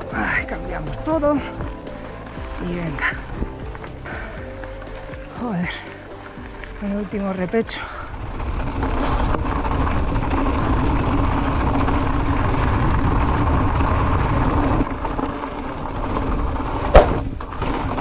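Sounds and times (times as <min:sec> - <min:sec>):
bike tyres rolling on ground: 0:00.0 - 0:18.0
wind rushing over microphone: 0:07.4 - 0:18.0
sharp knock of bike jolting: 0:16.9 - 0:17.3.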